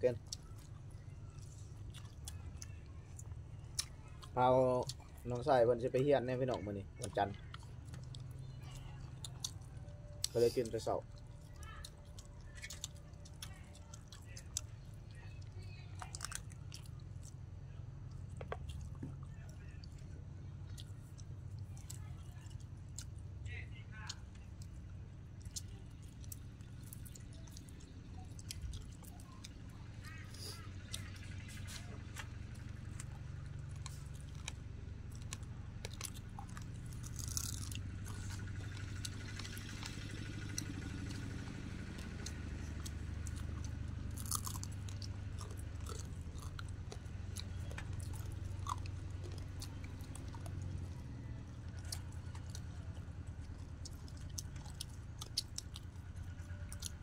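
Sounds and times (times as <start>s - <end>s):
people chewing chicken: 0.0s - 57.0s
sharp clicks and crunches: 25.4s - 57.0s.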